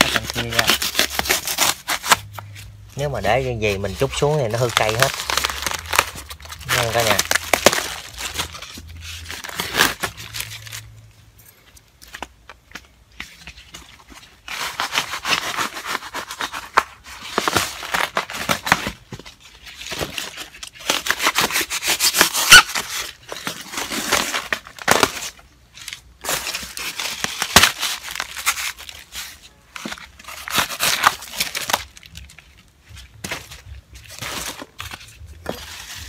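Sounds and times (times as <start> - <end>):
styrofoam crackling and tearing: 0.0 - 11.0, 11.9 - 36.0.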